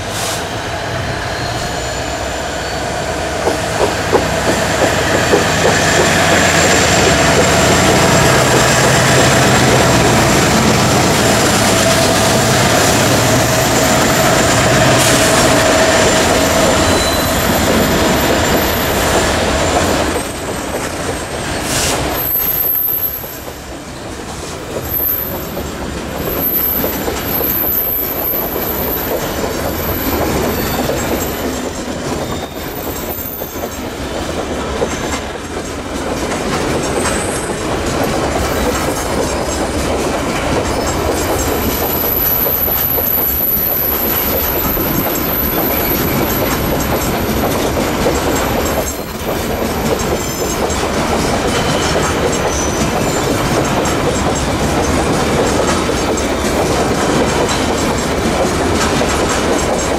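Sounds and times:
train wheels rumbling over rails: 0.0s - 59.9s
high-pitched wheel squeal: 1.2s - 3.2s, 13.3s - 19.8s.

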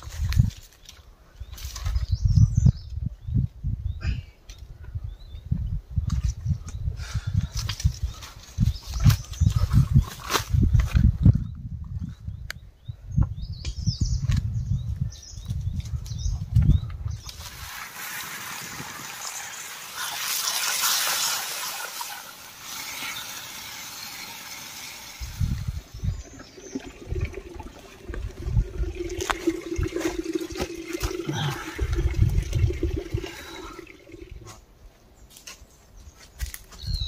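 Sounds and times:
water rushing: 17.6s - 34.4s
irregular low thumps: 25.2s - 34.5s.

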